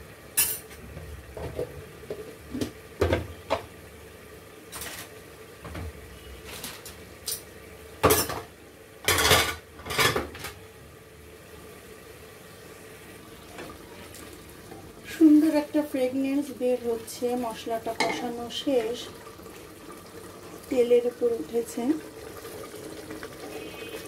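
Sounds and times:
utensils and cookware clattering: 0.4 - 0.8, 4.7 - 5.2, 6.5 - 10.6, 17.9 - 18.4.

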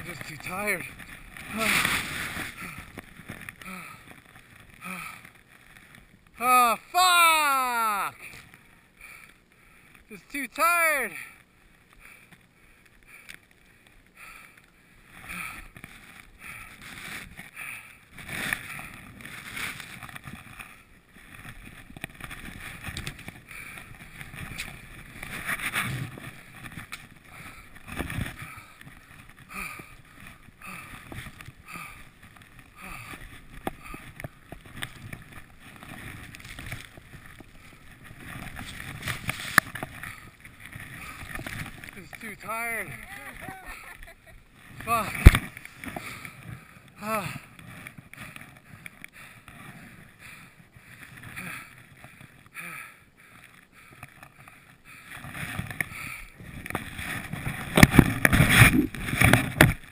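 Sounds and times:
skis swooshing through powder snow: 0.1 - 2.9.

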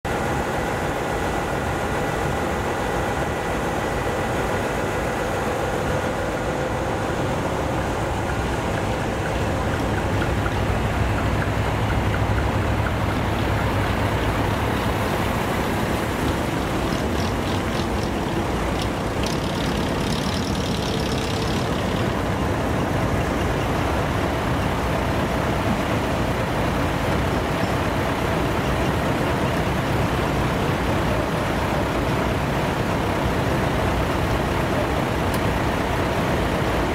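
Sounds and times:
truck diesel engines idling: 0.1 - 36.9
ticking and hiss: 7.8 - 32.1.

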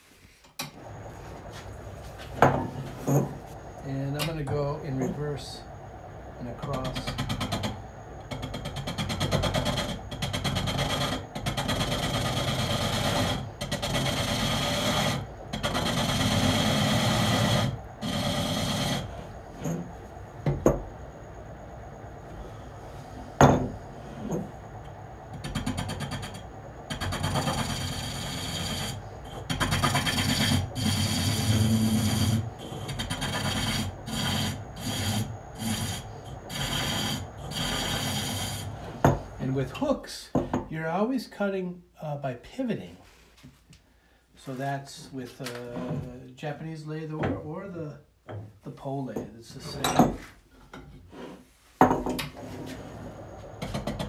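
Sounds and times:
lathe tool scraping wood: 6.5 - 19.9, 25.4 - 39.3.

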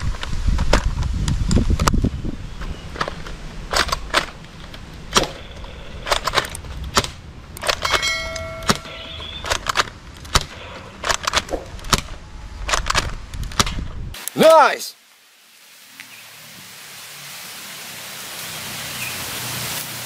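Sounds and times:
ringing ding of target: 7.9 - 9.2.

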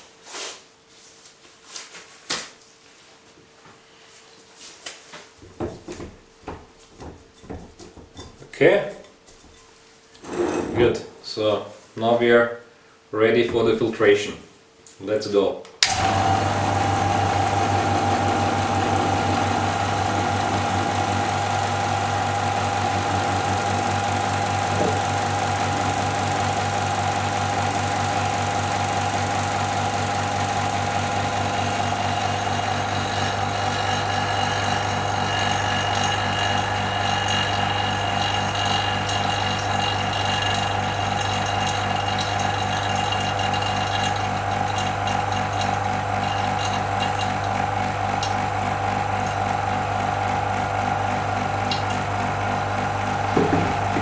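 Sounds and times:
vacuum pump humming: 15.8 - 54.0.

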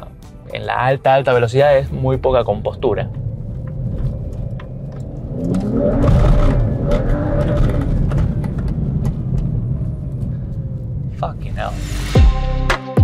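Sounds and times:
car engine accelerating: 1.8 - 12.2.

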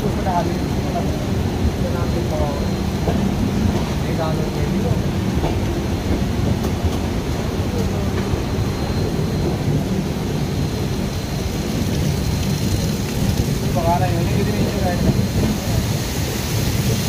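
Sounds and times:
train rumbling: 0.0 - 17.0
heavy rain hiss: 9.0 - 17.0.

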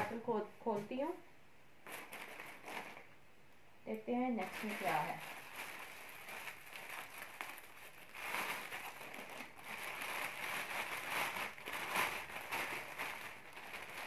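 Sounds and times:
plastic bag crinkling: 1.8 - 3.1, 4.4 - 14.0.

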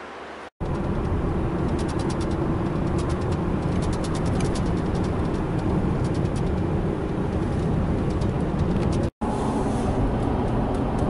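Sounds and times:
road and engine rumble in car: 0.0 - 11.0.

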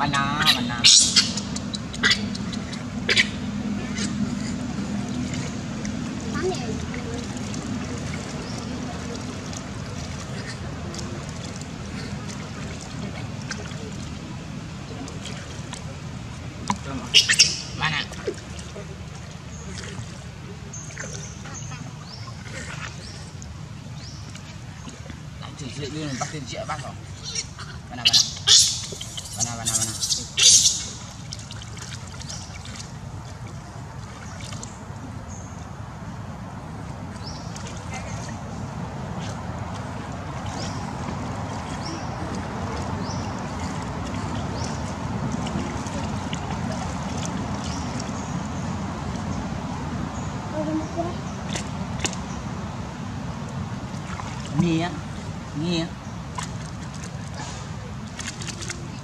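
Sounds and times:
steady low rumble: 0.0 - 59.0
water sloshing in plastic basin: 3.9 - 34.9, 37.0 - 49.3, 53.5 - 59.0
water splashing in plastic basin: 28.1 - 34.8, 56.2 - 59.0.

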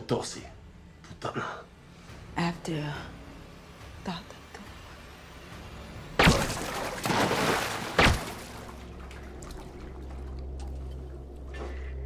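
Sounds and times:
low steady drone: 0.0 - 12.0.

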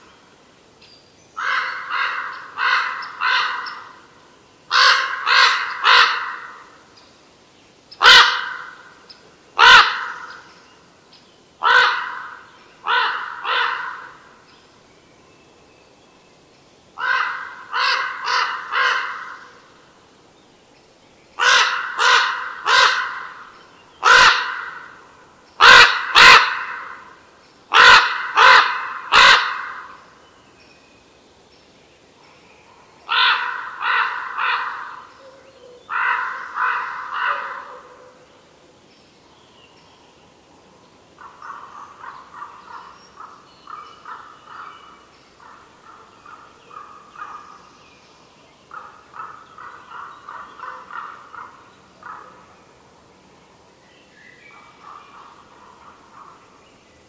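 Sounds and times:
crow cawing: 1.4 - 3.9, 4.7 - 6.7, 8.0 - 8.8, 9.6 - 10.3, 11.6 - 14.2, 17.0 - 19.6, 21.4 - 25.0, 25.6 - 27.1, 27.7 - 30.0, 33.1 - 35.1, 35.9 - 37.8, 48.7 - 52.4.

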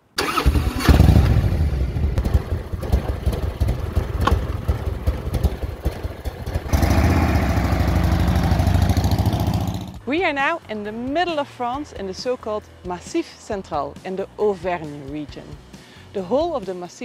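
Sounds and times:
motorcycle engine running: 0.2 - 10.0.

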